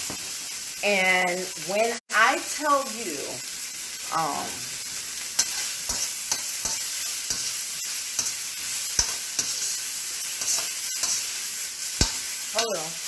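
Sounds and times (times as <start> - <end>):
meat sizzling in oil: 0.0 - 13.0
utensil clicking against pan: 9.0 - 9.7, 12.0 - 12.8.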